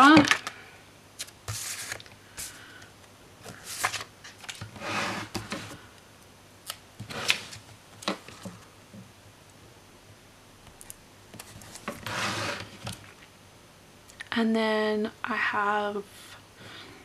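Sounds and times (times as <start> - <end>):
paper sticker sheet rustling: 1.2 - 2.6, 3.5 - 4.7.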